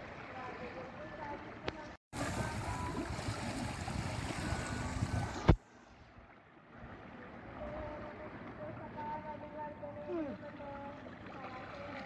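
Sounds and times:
seawater splashing against boat: 0.0 - 12.0.

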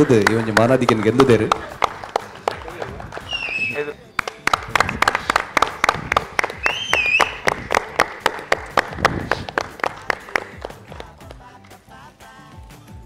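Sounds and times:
audience applauding: 0.0 - 11.8
short high whistle: 3.3 - 4.0, 6.6 - 7.5.

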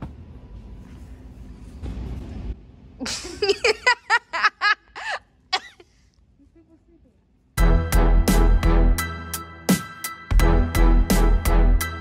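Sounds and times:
person giggling: 3.0 - 7.0.

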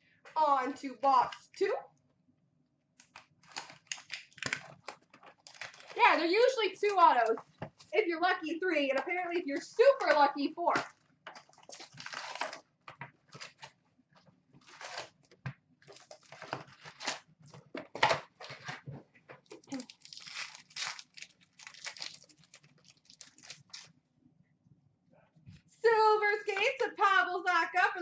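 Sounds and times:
wrappers tearing and crinkling: 3.0 - 6.5, 10.7 - 13.8, 14.6 - 15.3, 15.9 - 17.3, 19.5 - 24.0
paper and cards rustling: 3.0 - 13.8, 14.6 - 23.9.

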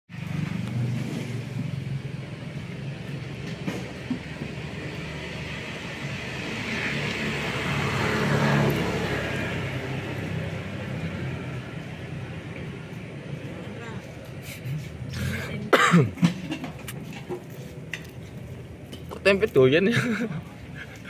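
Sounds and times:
low engine rumble of traffic: 0.1 - 21.0
vehicle passing: 0.1 - 21.0.

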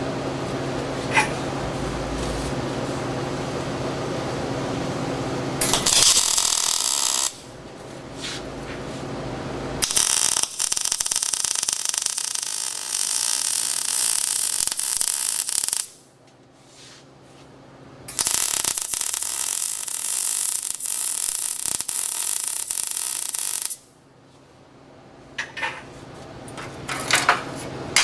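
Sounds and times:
steady low hum: 0.0 - 20.1
welder arc crackling: 5.6 - 7.5, 9.8 - 16.0, 18.1 - 23.9.

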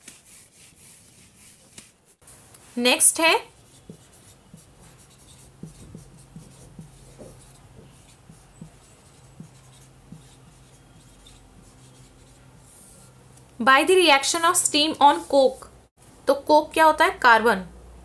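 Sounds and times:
pen scratching on paper: 0.0 - 1.9, 3.4 - 13.2.

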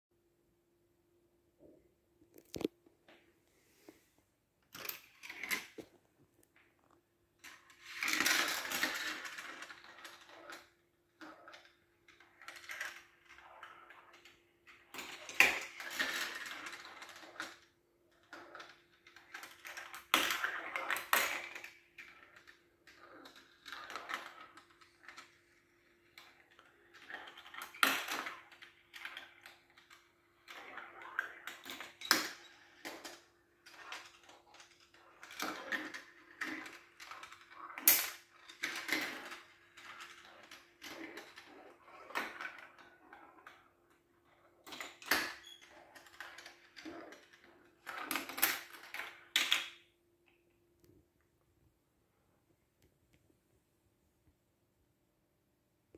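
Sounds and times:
marbles rattling through plastic track: 4.7 - 5.9, 7.4 - 49.8.

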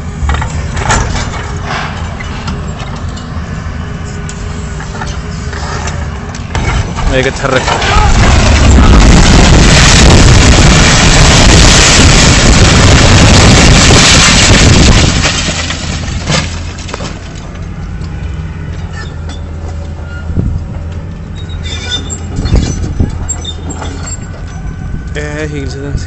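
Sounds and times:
excavator engine hum: 0.0 - 13.6, 14.4 - 26.0
building collapsing rumble and crash: 6.5 - 17.5.

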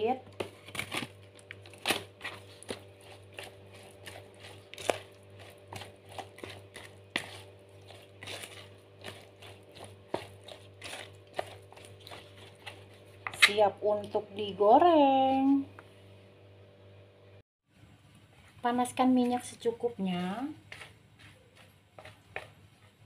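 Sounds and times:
paddle stirring thick batter: 0.3 - 13.8, 20.4 - 23.0.

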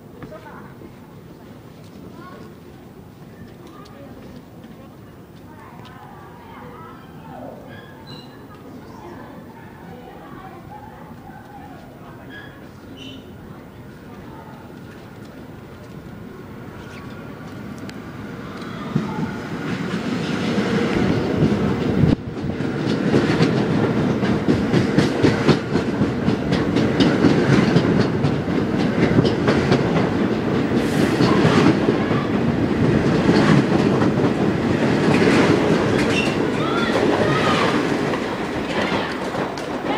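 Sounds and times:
subway train passing: 0.0 - 39.9
wheels clattering over rail joints: 18.5 - 39.9.

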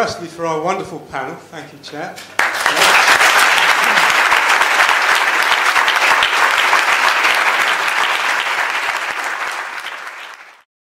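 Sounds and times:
audience applauding: 2.4 - 10.7.

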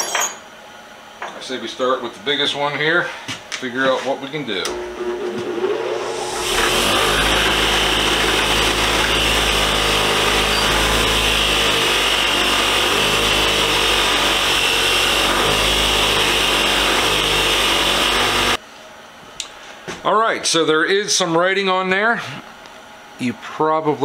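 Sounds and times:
bench grinder wire wheel hissing: 5.6 - 18.6.

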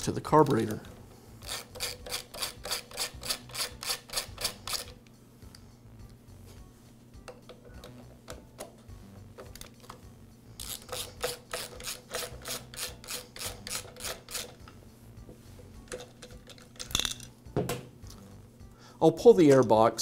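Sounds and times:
nut driver ratchet clicking: 0.5 - 5.0, 10.6 - 14.8.

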